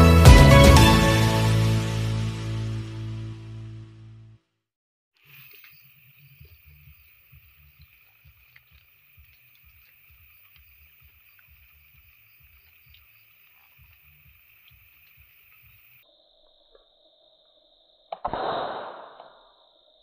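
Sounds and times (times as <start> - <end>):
night insects droning: 5.2 - 20.0.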